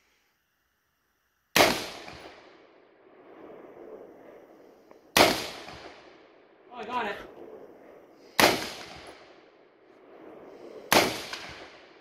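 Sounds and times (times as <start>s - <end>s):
rifle shots echoing: 1.6s - 12.0s.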